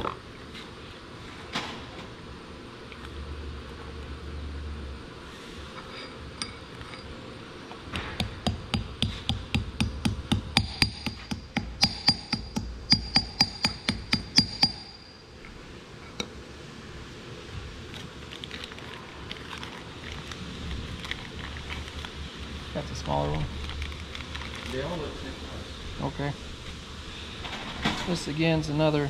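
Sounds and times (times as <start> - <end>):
hammer tapping on metal: 8.0 - 15.0.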